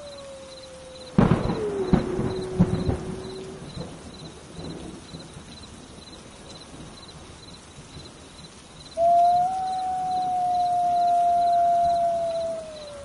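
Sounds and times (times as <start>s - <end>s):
wolf howling: 0.0s - 3.8s, 9.0s - 13.0s
faint outdoor hiss: 0.0s - 13.0s.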